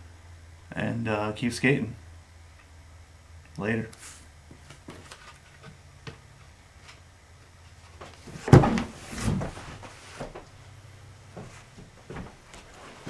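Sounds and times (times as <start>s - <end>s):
handling knocks: 8.0s - 10.5s.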